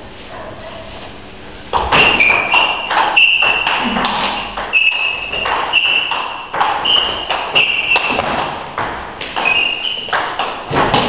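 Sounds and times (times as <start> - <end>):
high-pitched squeaks: 1.9 - 8.2, 9.4 - 10.2.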